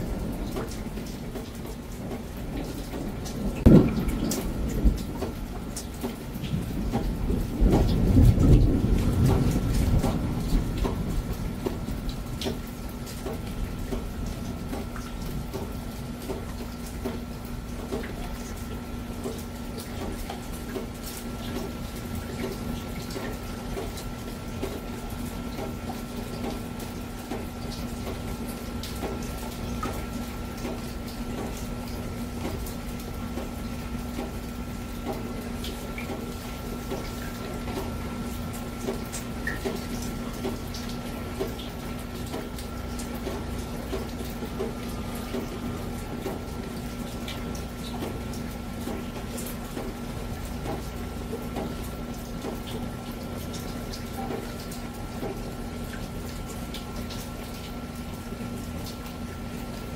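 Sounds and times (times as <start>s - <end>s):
water dripping and trickling: 0.0s - 59.9s.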